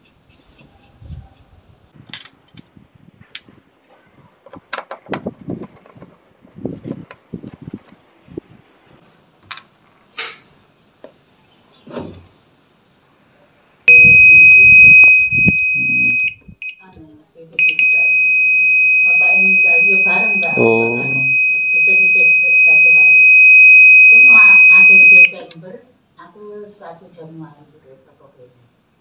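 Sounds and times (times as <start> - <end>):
clicks and knocks of handling: 4.4 - 6.2
washing machine buzzer beeping: 13.9 - 16.8, 17.6 - 25.3.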